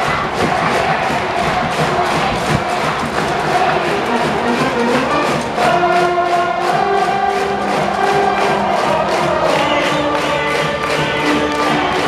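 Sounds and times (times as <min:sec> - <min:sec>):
crowd singing along: 0:00.0 - 0:12.0
brass band playing: 0:03.5 - 0:12.0.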